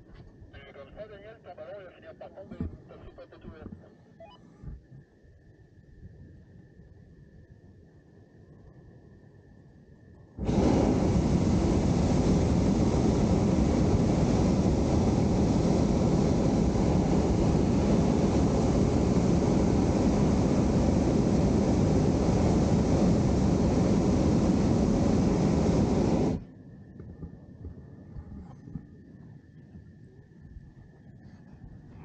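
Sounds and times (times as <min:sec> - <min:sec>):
propane burner blast: 0:10.4 - 0:26.5.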